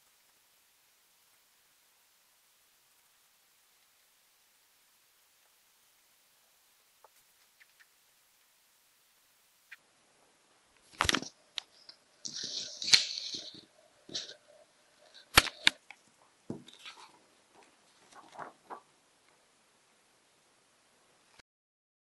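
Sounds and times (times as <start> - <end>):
paper rustling: 10.9 - 15.8, 16.5 - 18.9.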